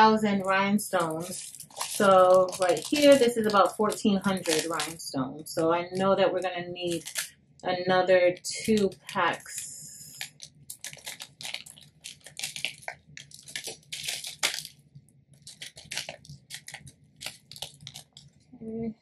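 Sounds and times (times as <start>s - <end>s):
plastic packet crinkling: 0.0s - 7.3s, 8.4s - 18.5s
tiny stones spilling: 1.0s - 3.6s, 10.1s - 14.7s.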